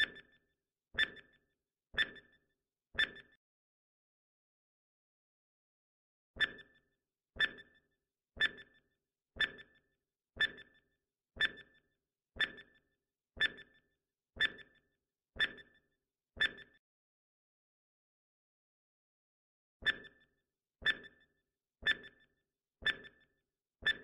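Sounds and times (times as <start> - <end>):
clock-like timer ticks: 0.0 - 0.4, 1.0 - 1.4, 2.0 - 2.4, 3.0 - 3.4, 6.4 - 6.8, 7.4 - 7.8, 8.4 - 14.8, 15.4 - 15.8, 16.4 - 16.8, 19.8 - 24.0.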